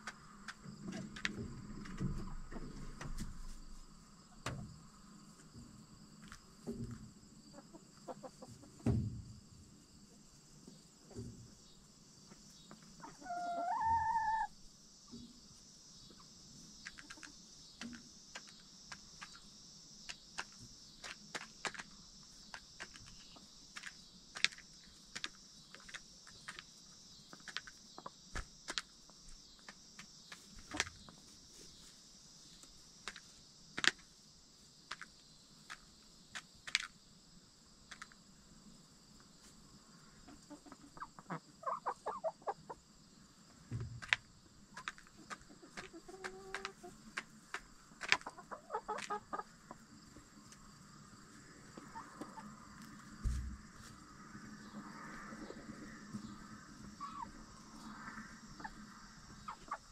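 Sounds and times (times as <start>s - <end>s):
hens clucking softly: 6.2s - 8.9s, 12.3s - 14.5s, 16.1s - 17.4s, 39.4s - 42.9s, 44.8s - 50.6s, 51.2s - 53.9s, 54.6s - 59.9s
beaks pecking at feed: 16.7s - 31.2s, 43.8s - 49.8s.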